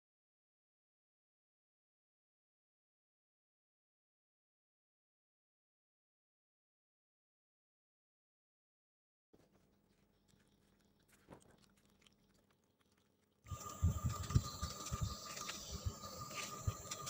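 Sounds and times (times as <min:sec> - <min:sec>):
scissors mashing wet paper pulp: 0:09.4 - 0:17.0.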